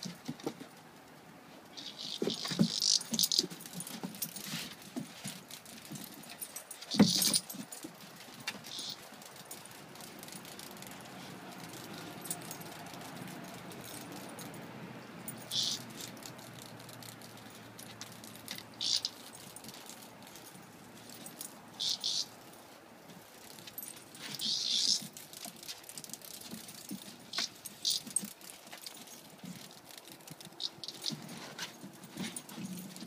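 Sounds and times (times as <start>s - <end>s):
cicada rattling: 1.8s - 4.3s, 6.9s - 7.4s, 8.5s - 22.5s, 23.2s - 31.6s.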